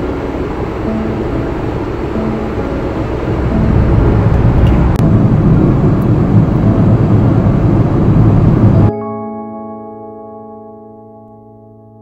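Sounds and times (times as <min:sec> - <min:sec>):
car road and engine rumble: 0:00.0 - 0:08.9.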